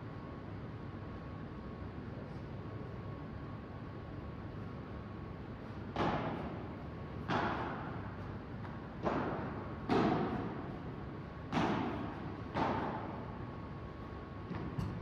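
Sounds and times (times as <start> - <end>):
ball hits echoing in hall: 5.9 - 13.7, 14.4 - 15.0.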